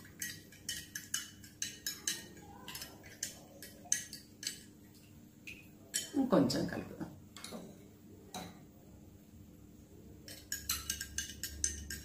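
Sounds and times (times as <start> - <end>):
metal spoon clinking on glass: 0.1 - 4.6, 10.3 - 12.0.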